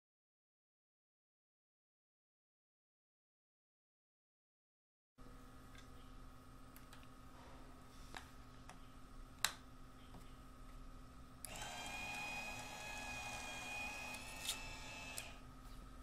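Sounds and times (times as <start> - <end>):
electric motor whining: 11.5 - 15.4.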